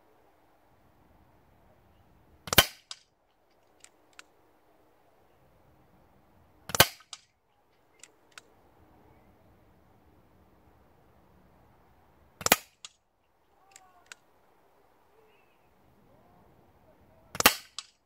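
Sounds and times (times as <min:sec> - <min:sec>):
air rifle crack: 0:02.5 - 0:03.0, 0:06.7 - 0:07.2, 0:12.4 - 0:13.0, 0:17.4 - 0:18.0
rifle action clicks: 0:03.7 - 0:04.3, 0:13.7 - 0:14.2, 0:17.4 - 0:18.0.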